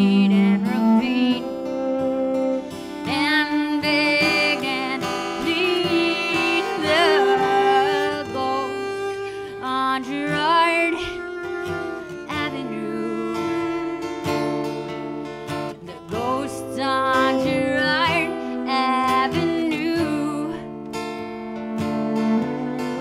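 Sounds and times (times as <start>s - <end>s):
woman singing with vibrato: 0.0s - 1.8s, 3.0s - 14.2s, 15.8s - 20.8s
acoustic guitar strummed: 0.0s - 23.0s
bowed cello: 0.0s - 23.0s.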